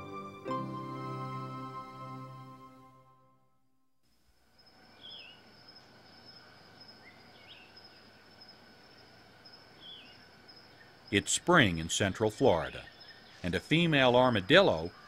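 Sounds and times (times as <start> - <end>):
background music: 0.0 - 3.4
high-pitched insect trill: 4.5 - 15.0.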